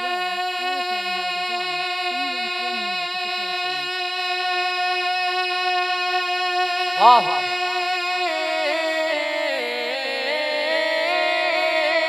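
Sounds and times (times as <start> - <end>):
held drone note: 0.0 - 5.2
man singing wordless melody: 0.0 - 12.0.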